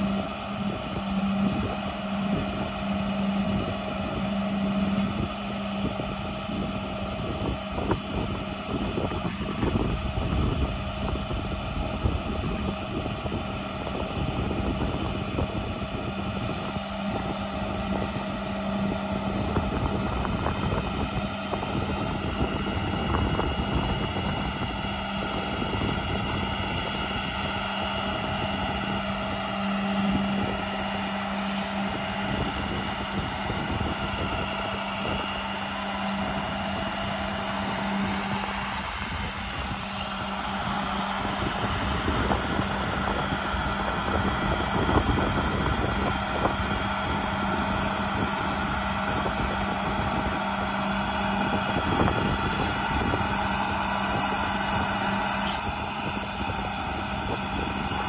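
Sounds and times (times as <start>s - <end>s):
truck diesel engine droning: 0.0s - 58.0s.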